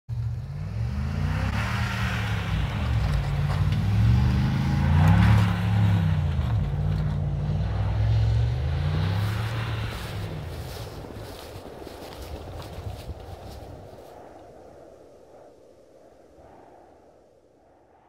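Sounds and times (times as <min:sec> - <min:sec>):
tyres spinning in snow: 0:00.1 - 0:14.2
truck engine revving: 0:00.2 - 0:11.6.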